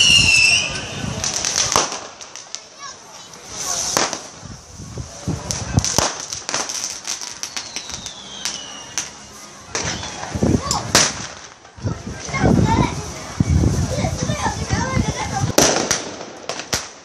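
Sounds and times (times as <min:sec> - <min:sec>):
falling firework whistle: 0:00.0 - 0:02.1, 0:06.6 - 0:11.2
firecrackers cracking and popping: 0:00.0 - 0:17.0
steady high hiss: 0:00.0 - 0:17.0.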